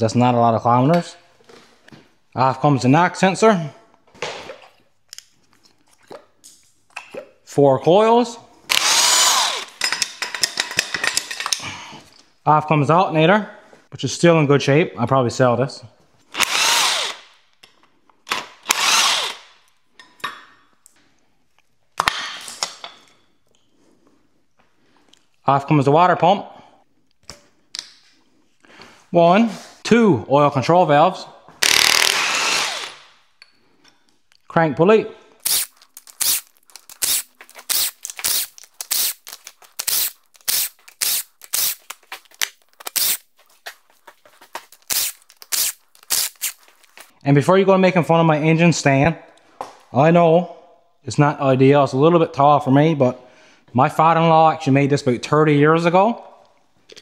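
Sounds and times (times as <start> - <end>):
cordless drill bursts: 8.7 - 9.7, 16.3 - 17.3, 18.6 - 19.5, 31.6 - 33.2, 35.4 - 36.4, 37.0 - 39.2, 39.8 - 41.8, 42.9 - 43.2, 44.9 - 46.6
impact driver hammering: 31.6 - 33.0.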